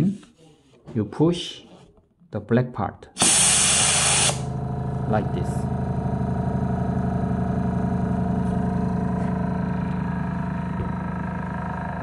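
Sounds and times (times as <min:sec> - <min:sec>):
air compressor droning: 0:03.2 - 0:12.0.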